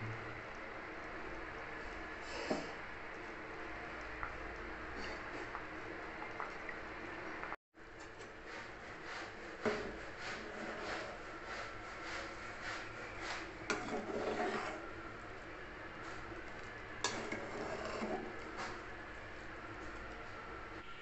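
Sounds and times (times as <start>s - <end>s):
ladle stirring curry in a pot: 8.0s - 20.0s.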